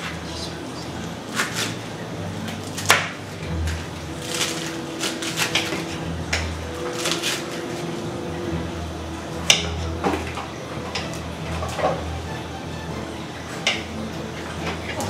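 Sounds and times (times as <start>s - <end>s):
low steady hum: 0.0s - 15.0s
dishes and utensils clinking: 9.4s - 12.4s.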